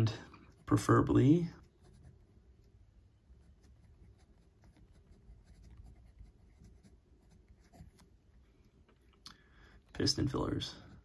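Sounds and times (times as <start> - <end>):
fountain pen scratching on paper: 3.4 - 8.1.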